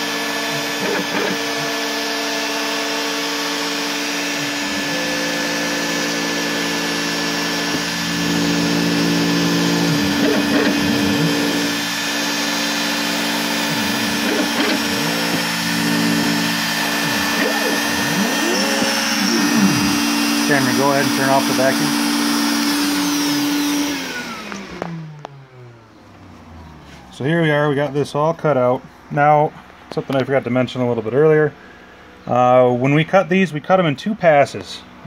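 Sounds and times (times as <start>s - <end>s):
router motor whine: 0.0s - 27.1s
vacuum running: 0.0s - 29.6s.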